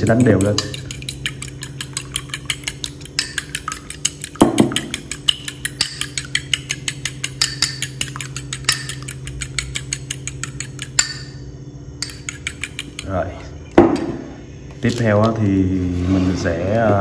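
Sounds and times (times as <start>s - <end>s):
fork beating eggs in bowl: 0.0s - 11.4s, 12.0s - 13.6s.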